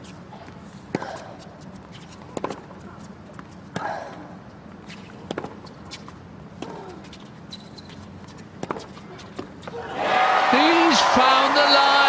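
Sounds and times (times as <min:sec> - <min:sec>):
tennis balls struck by racquets: 0:02.3 - 0:02.7.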